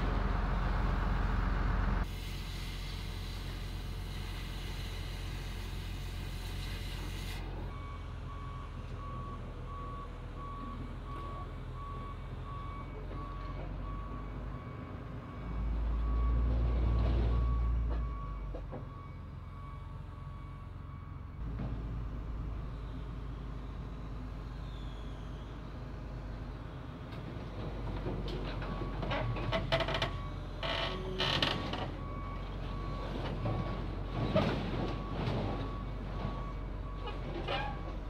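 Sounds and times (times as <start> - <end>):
diesel engine running: 0.0 - 18.2
reversing alarm beeping: 7.7 - 21.4, 28.7 - 33.9, 34.9 - 38.0.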